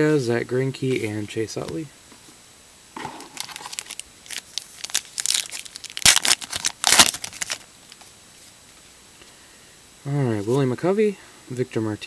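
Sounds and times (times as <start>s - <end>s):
wrapper tearing and crinkling: 3.2s - 7.7s.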